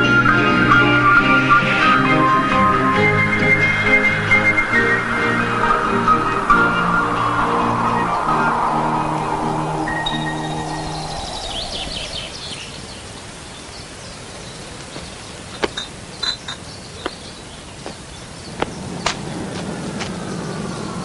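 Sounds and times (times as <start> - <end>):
held music chord: 0.0 - 12.4
birds chirping: 0.0 - 21.0.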